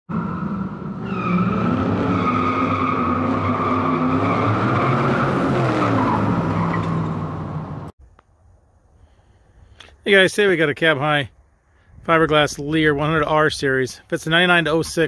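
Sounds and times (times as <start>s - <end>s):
car engine at high revs: 0.1s - 7.9s
tires squealing: 0.1s - 7.9s.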